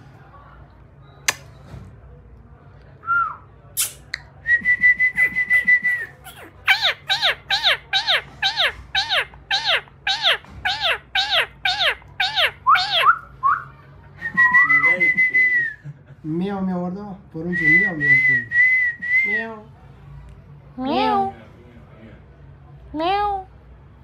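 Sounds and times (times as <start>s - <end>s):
parakeet whistling: 5.5s - 13.3s.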